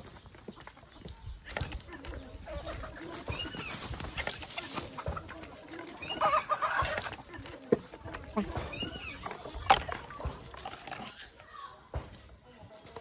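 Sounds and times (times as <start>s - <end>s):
chickens clucking: 0.0s - 11.4s
dry palm fronds rustling: 2.7s - 11.2s.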